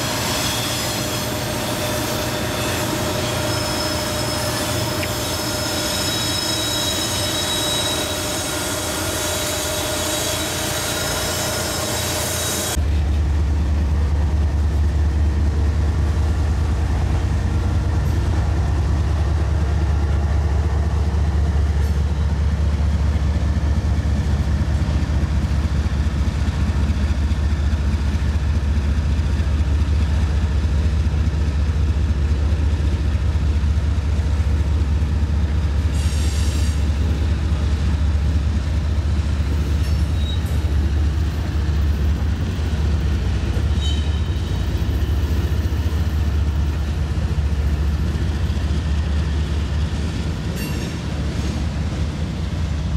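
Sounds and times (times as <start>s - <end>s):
wheel squeal: 0.0s - 12.8s, 39.8s - 40.8s, 43.6s - 45.1s
freight train rumbling past: 0.0s - 52.9s.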